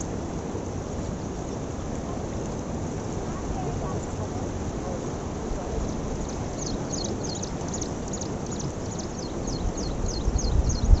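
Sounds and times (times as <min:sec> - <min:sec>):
rushing canal water: 0:00.0 - 0:11.0
wind on microphone: 0:00.0 - 0:11.0
bird chirping: 0:05.8 - 0:11.0.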